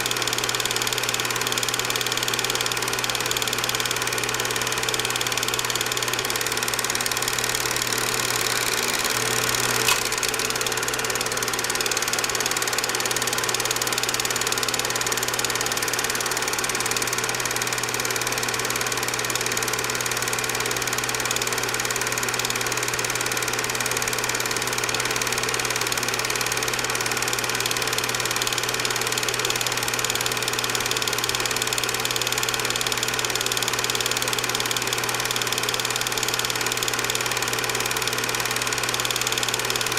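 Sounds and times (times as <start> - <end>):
film projector whirring: 0.0 - 39.9
projector click: 6.5 - 12.0.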